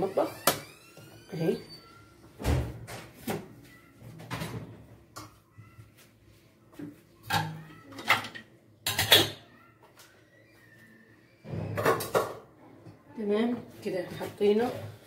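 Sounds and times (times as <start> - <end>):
dishes and utensils clattering: 7.2 - 9.6, 11.5 - 13.0.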